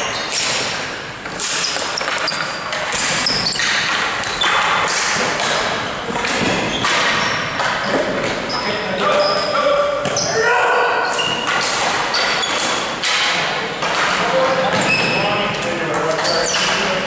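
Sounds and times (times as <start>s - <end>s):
shoes squeaking: 0.0s - 13.0s, 14.2s - 17.0s
sticks and ball knocking on floor: 0.3s - 8.4s, 11.2s - 15.1s.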